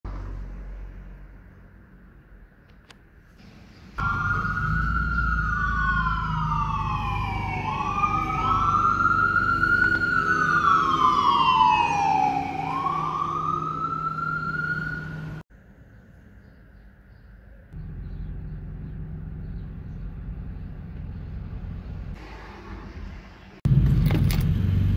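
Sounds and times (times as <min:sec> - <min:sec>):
emergency sirens wailing: 0:04.0 - 0:15.4.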